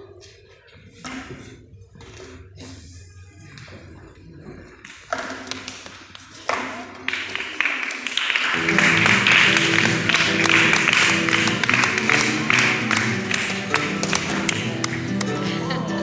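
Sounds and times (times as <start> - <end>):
acoustic guitar playing: 8.5 - 16.0.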